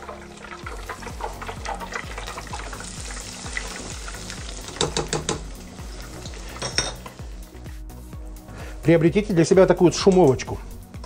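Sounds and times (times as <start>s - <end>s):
food sizzling in hot oil: 0.0s - 8.6s
metal skimmer clinking on pot: 6.6s - 7.1s.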